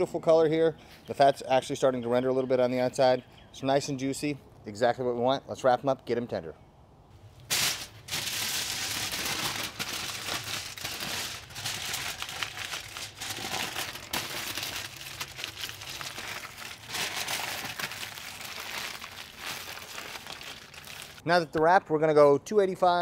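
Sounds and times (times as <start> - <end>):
aluminium foil crinkling: 7.4 - 21.2.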